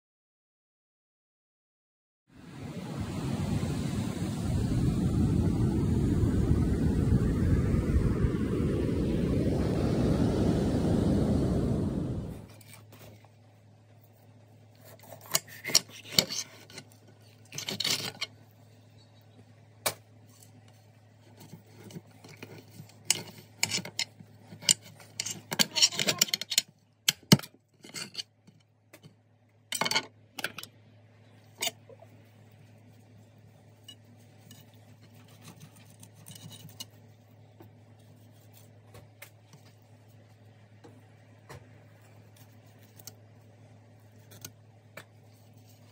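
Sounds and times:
faint low hum: 2.6 - 45.9
knife scraping fish: 14.7 - 18.3, 34.0 - 37.1.

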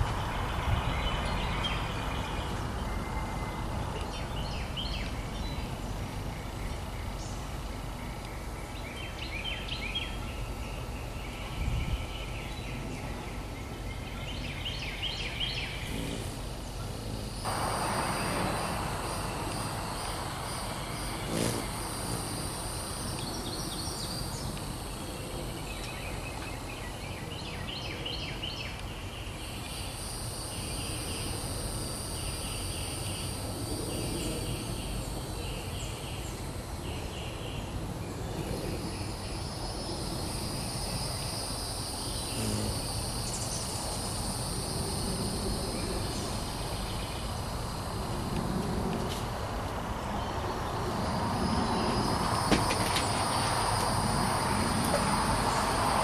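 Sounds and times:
low background rumble: 0.0 - 27.4
bird chirping: 0.0 - 31.4
insects droning: 0.0 - 56.0.

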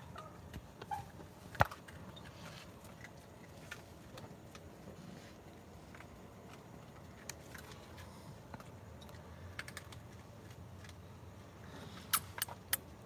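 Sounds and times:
raccoon crunching dry food: 1.5 - 11.1.

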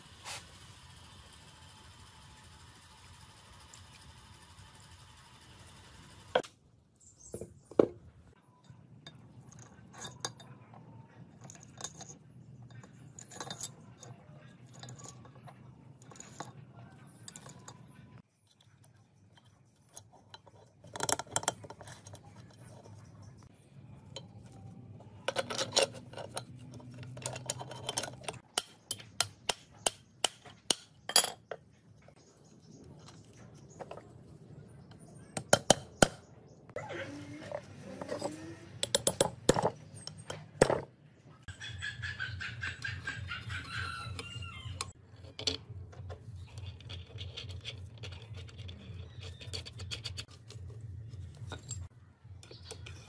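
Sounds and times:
metal gears clinking and knocking: 8.6 - 31.6.

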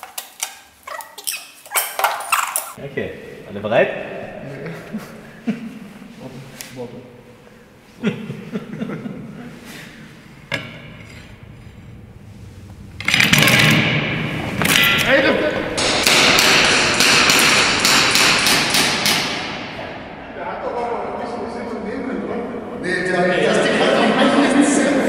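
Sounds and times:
sharp knocks and clatters: 15.8 - 19.8.

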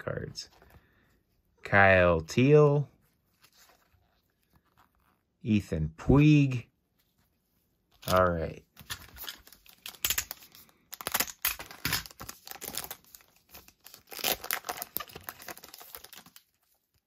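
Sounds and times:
foil wrapper tearing and crinkling: 8.8 - 16.7.

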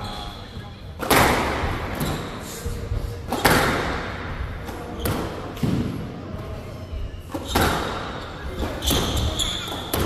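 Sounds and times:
racket hitting squash ball: 0.9 - 2.4, 3.2 - 6.1, 7.3 - 10.0
ball hitting court walls: 3.3 - 6.1, 7.3 - 10.0.

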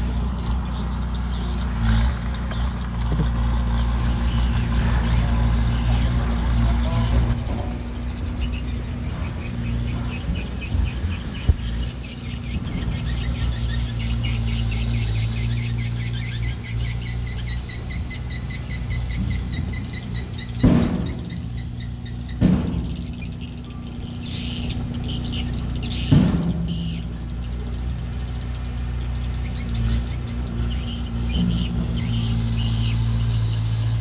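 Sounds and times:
diesel engine running: 0.0 - 34.0
rhythmic high squeaking: 0.0 - 34.0
sharp metallic clanks: 18.3 - 34.0.

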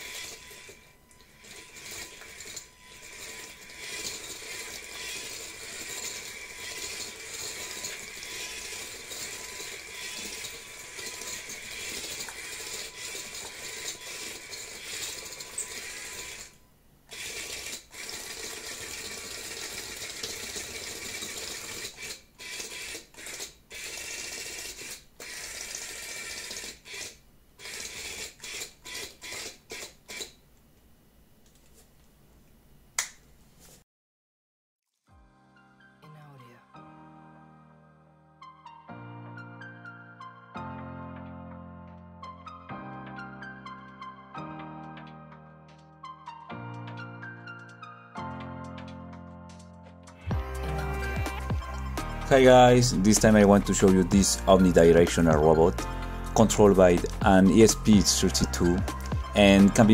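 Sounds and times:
electric motors whirring: 0.0 - 30.4.

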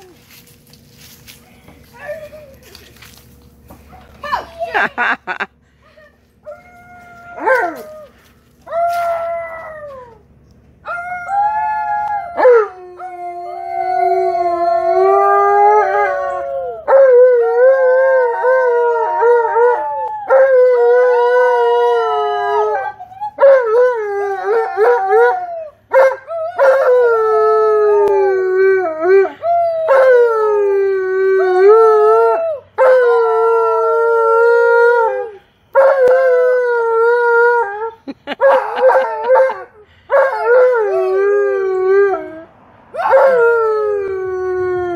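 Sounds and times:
dog howling: 6.4 - 8.1.

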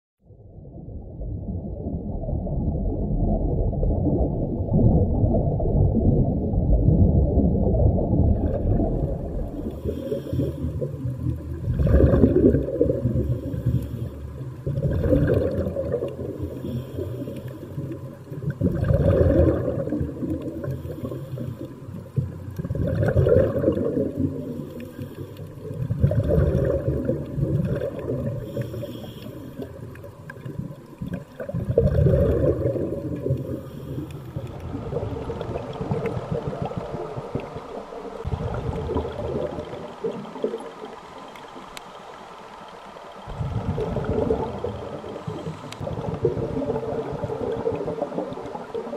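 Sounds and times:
diver's exhaled bubbles gurgling: 0.4 - 41.7, 43.3 - 48.9
wash of water: 7.4 - 42.4.

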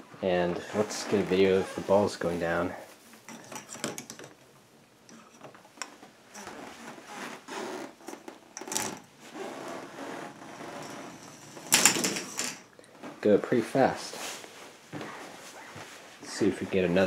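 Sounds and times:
plastic balls rolling along track: 10.6 - 12.6.

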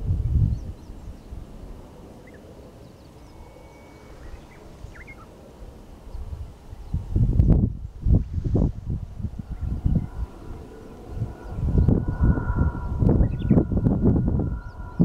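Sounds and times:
wind buffeting microphone: 0.0 - 15.0
high bird chirps: 12.8 - 13.7.

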